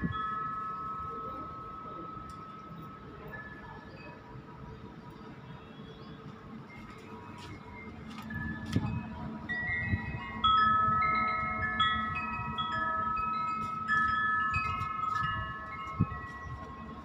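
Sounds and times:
wind chimes ringing: 0.0 - 5.4, 6.5 - 17.0.

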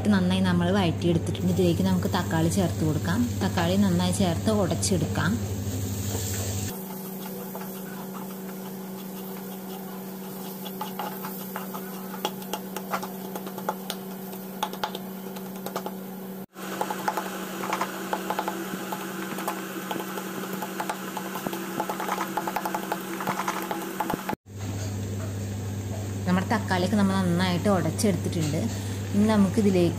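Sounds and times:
steady low hum: 0.0 - 29.9
wooden spatula scraping a pan: 6.0 - 14.4.

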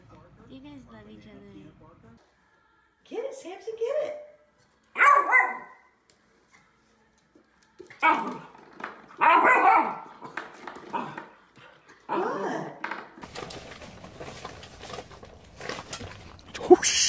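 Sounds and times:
puppy barking: 5.0 - 5.9, 9.2 - 10.3.

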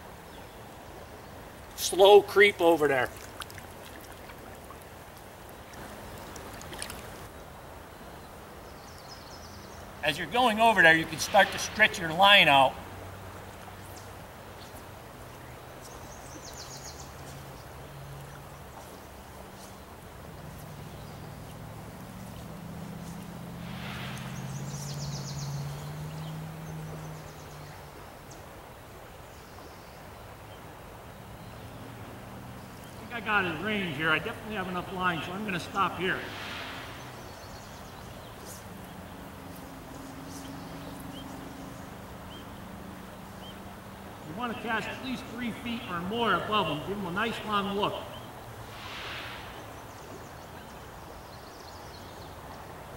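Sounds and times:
river water washing around legs: 0.0 - 52.9
steady hiss: 5.5 - 15.2, 19.2 - 30.0, 30.7 - 52.0.

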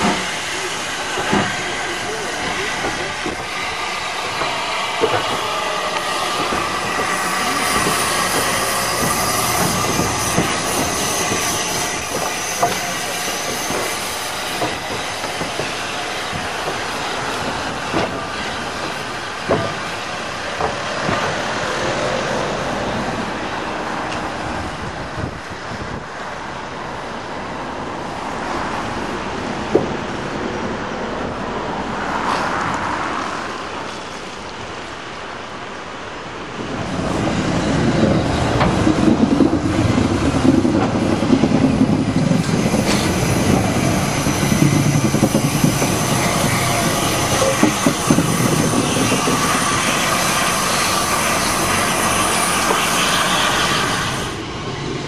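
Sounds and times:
steam locomotive hissing: 0.0 - 26.0, 36.1 - 55.0
wheel squeal: 4.3 - 15.1, 42.5 - 54.4.

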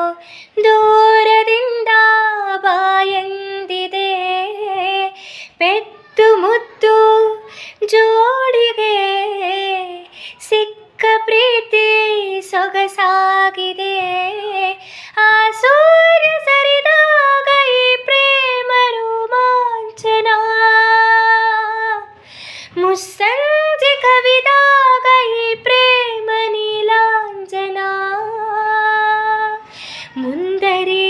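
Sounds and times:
quick breath in: 5.2 - 5.6, 7.4 - 7.8, 10.1 - 10.4, 14.8 - 15.2, 22.2 - 22.8, 29.6 - 30.2
woman singing solo: 22.8 - 31.0.

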